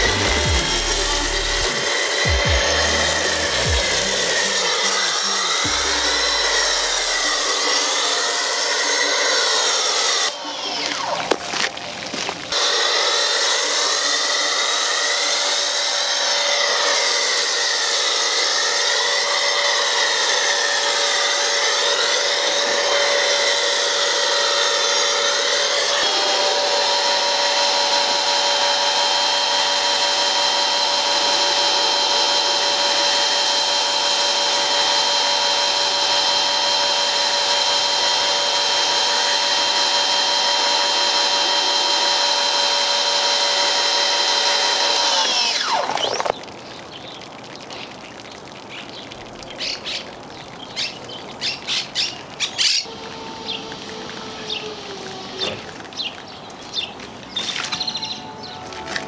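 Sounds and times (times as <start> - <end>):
foam spray hissing: 0.0 - 45.1
pressure washer motor whine: 0.0 - 46.5, 51.5 - 59.0.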